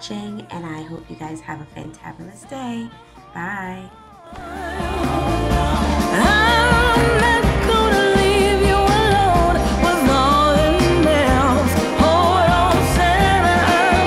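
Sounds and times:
person singing: 0:00.0 - 0:14.0
steady bass line: 0:04.4 - 0:14.0.

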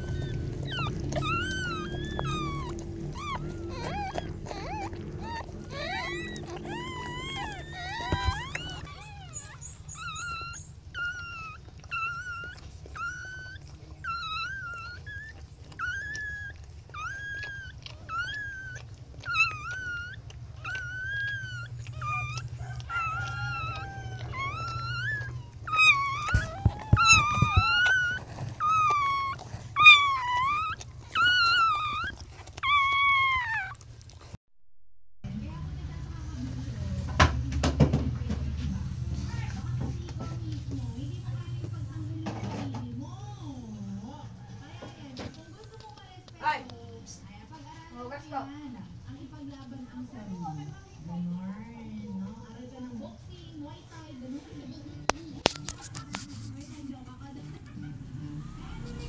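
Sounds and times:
puppy squealing: 0:00.0 - 0:34.3.

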